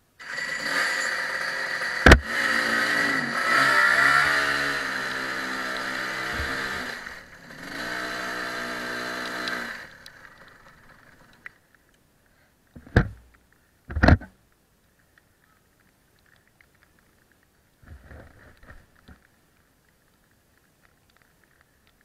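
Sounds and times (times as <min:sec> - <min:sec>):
kart engine running: 0:00.2 - 0:11.3.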